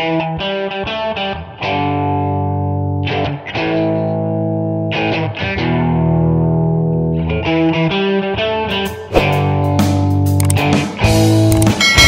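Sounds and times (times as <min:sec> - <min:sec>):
distorted electric guitar chords: 0:00.0 - 0:08.6.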